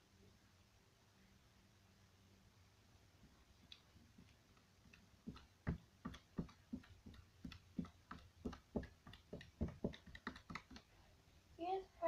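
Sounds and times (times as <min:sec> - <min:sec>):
hands patting rhythmically: 0:03.6 - 0:11.0.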